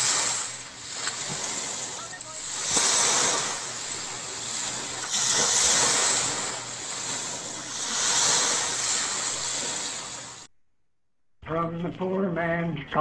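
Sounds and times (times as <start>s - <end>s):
ocean waves washing in and out: 0.0s - 10.5s.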